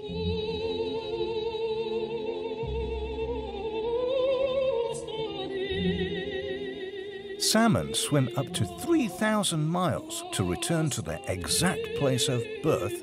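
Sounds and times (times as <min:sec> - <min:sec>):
operatic singing with vibrato: 0:04.7 - 0:13.0.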